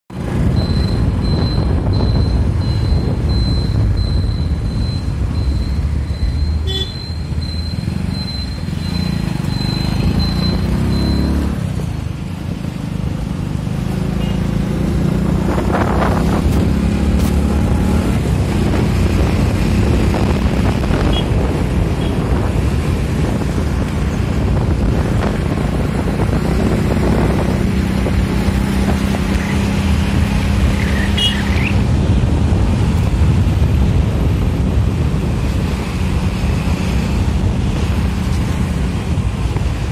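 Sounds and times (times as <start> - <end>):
vehicle engine hum: 0.1 - 39.9
vehicles passing: 0.1 - 39.9
wind buffeting microphone: 15.0 - 30.8, 31.6 - 39.9.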